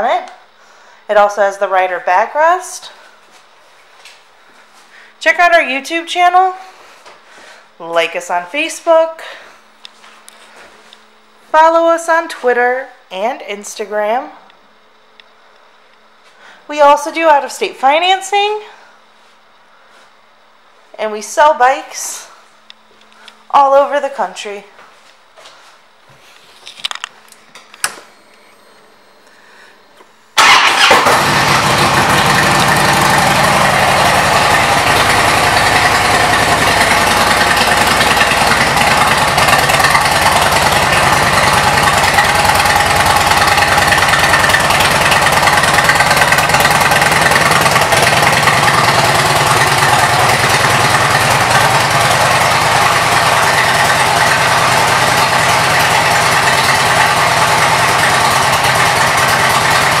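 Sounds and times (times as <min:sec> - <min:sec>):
motorcycle engine idling: 0:30.4 - 1:00.0.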